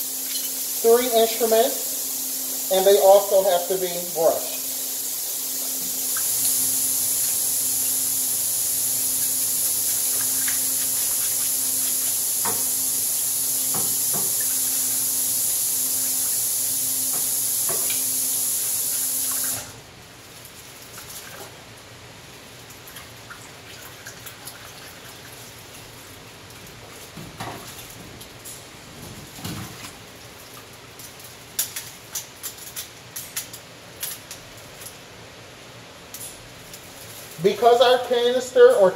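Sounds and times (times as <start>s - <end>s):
rushing water hiss with low hum: 0.0s - 23.6s, 25.1s - 38.9s.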